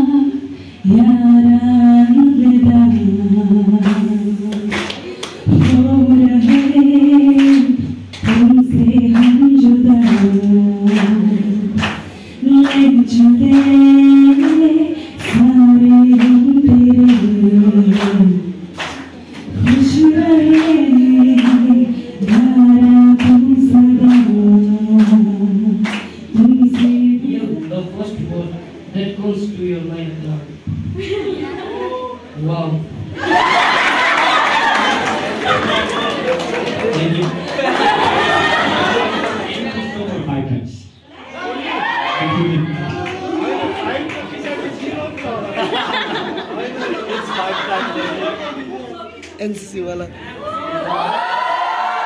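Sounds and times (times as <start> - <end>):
woman singing unaccompanied: 0.0 - 18.6, 19.5 - 27.9.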